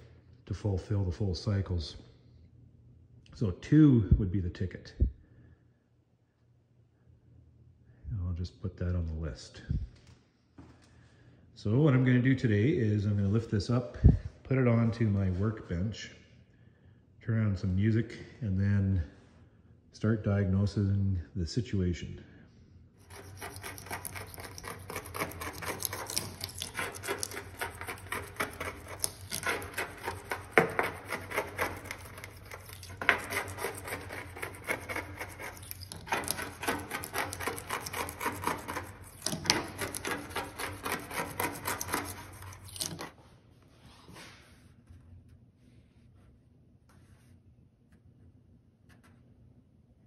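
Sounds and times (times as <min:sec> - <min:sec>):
scraper scraping wax off metal: 0:23.0 - 0:43.2.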